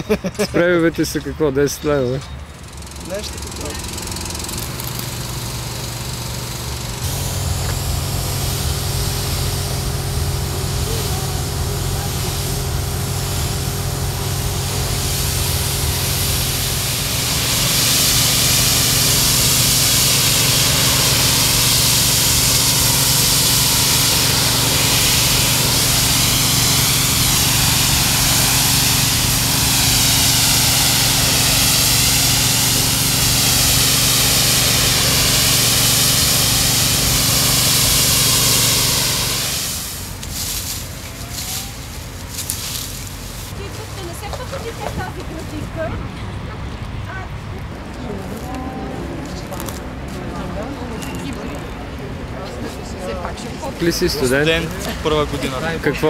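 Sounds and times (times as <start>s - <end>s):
pressure washer motor hum: 0.2s - 45.9s, 53.0s - 56.0s
water jet hissing on stone wall: 2.8s - 45.9s, 53.0s - 56.0s.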